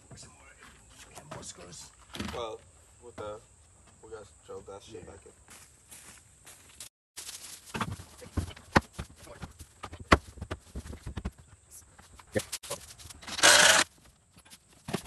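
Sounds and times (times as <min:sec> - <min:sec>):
power drill driving screw: 0:13.3 - 0:13.9.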